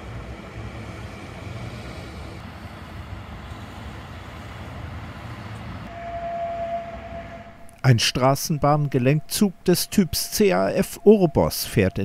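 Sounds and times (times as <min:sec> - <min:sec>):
buses and road traffic rumble: 0:00.0 - 0:06.1.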